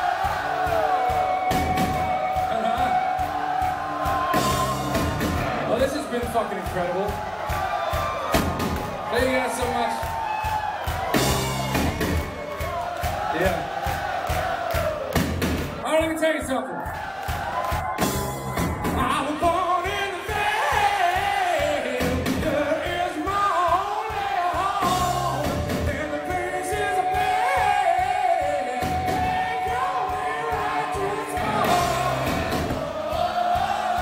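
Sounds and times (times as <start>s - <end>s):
hard rock band playing live: 0.0s - 12.7s, 17.3s - 34.0s
person singing: 18.9s - 32.6s.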